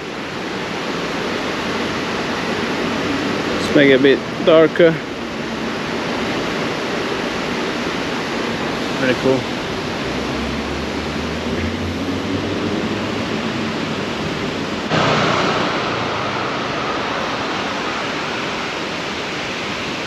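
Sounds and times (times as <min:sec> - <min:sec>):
city street ambience: 0:00.0 - 0:20.0
low rumble: 0:10.0 - 0:20.0.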